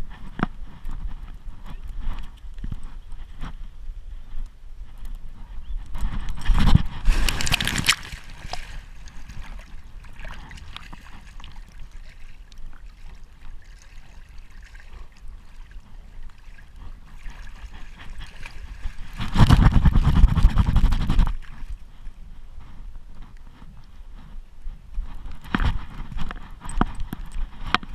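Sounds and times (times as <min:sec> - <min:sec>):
water splashing: 0:06.8 - 0:21.7
water trickling: 0:07.0 - 0:19.6.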